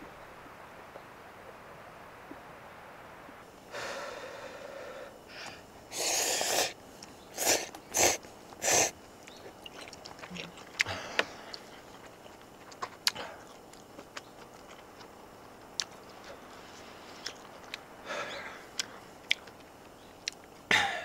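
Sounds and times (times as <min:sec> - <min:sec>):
breathy mouth sounds: 0:03.7 - 0:20.5
person slurping noodles: 0:05.9 - 0:09.0.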